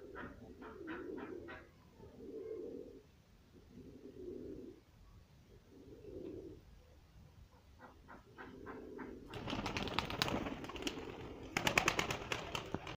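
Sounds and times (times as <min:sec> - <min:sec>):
pigeons cooing: 0:00.0 - 0:04.8, 0:05.5 - 0:06.7, 0:07.8 - 0:12.9.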